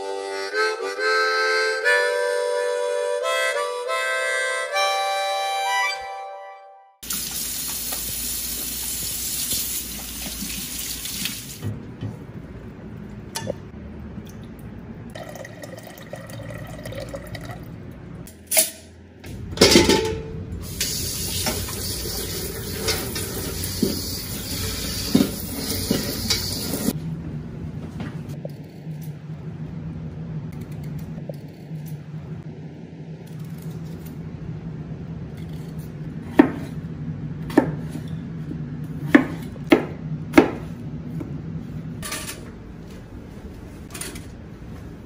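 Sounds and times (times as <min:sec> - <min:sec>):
faucet running into sink: 0:07.0 - 0:11.6, 0:20.7 - 0:26.9
hands washing under water: 0:07.1 - 0:11.6.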